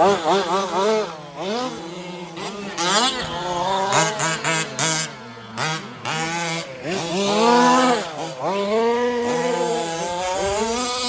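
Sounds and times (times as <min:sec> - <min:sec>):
small two-stroke engines revving: 0:00.0 - 0:11.0.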